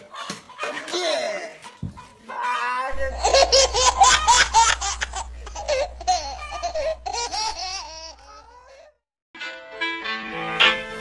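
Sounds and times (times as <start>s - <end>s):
young man laughing loudly: 3.0s - 8.5s.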